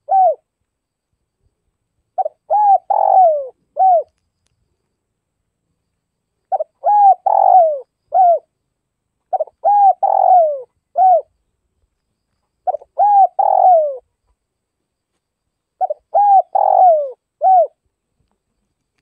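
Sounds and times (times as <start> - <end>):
dove cooing: 0.0 - 0.5, 2.2 - 4.1, 6.5 - 8.5, 9.3 - 11.3, 12.6 - 14.1, 15.8 - 17.8.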